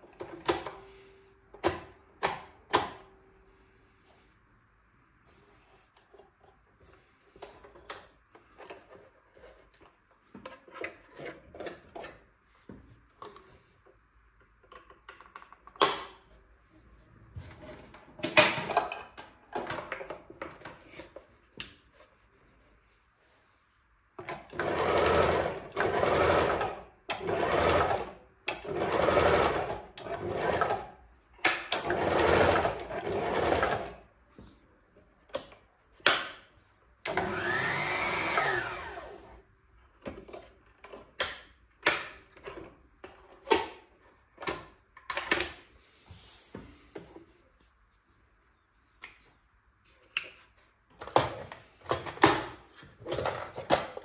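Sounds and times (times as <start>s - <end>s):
sewing machine running: 24.6s - 30.8s, 31.9s - 33.9s.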